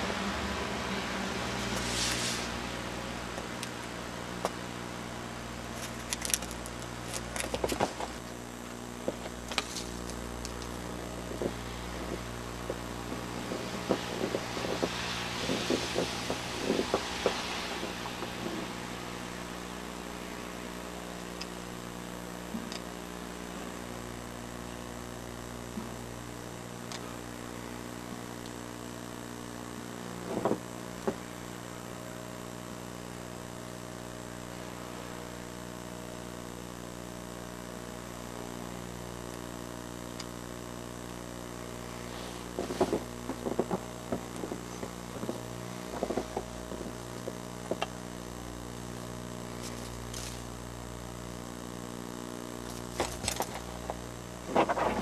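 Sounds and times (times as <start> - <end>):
steady low hum: 0.0 - 55.0
rustles: 1.5 - 4.7, 5.6 - 20.0, 41.7 - 48.3, 48.9 - 51.3, 52.6 - 55.0.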